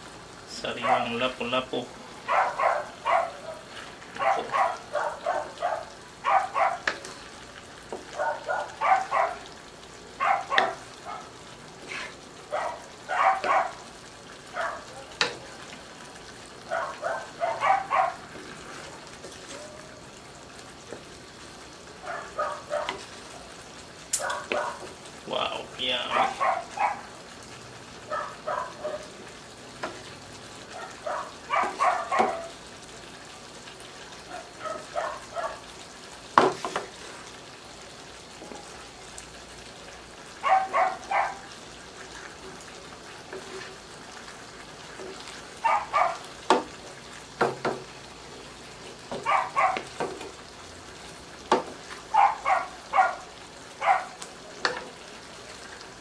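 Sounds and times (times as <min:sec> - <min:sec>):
sauce sizzling in a wok: 0:00.0 - 0:56.0
wooden spatula stirring: 0:03.5 - 0:05.6, 0:17.3 - 0:19.8, 0:22.6 - 0:23.3, 0:30.9 - 0:32.6, 0:36.4 - 0:37.4, 0:41.8 - 0:45.5.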